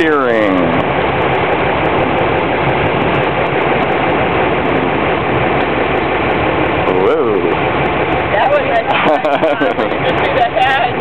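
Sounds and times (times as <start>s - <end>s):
motorboat engine droning: 0.0s - 11.0s
water rushing: 0.0s - 11.0s
wind: 0.0s - 11.0s.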